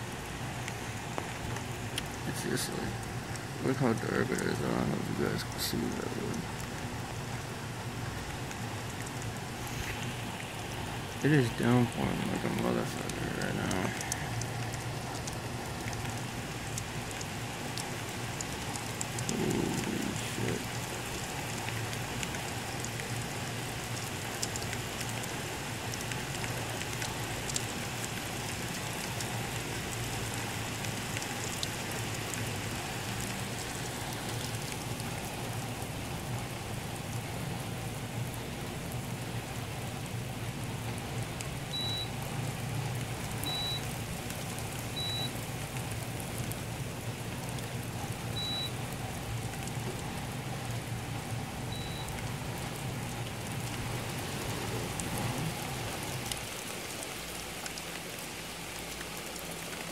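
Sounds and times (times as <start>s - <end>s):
heavy rain pouring: 0.0s - 59.9s
short high beeps: 41.8s - 42.1s, 43.5s - 43.8s, 45.0s - 45.3s, 48.4s - 48.7s.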